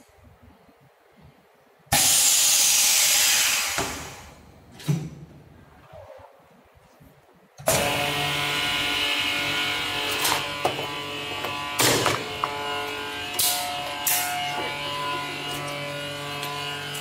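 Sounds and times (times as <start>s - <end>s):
vacuum packing machine motor hum: 7.6s - 17.0s.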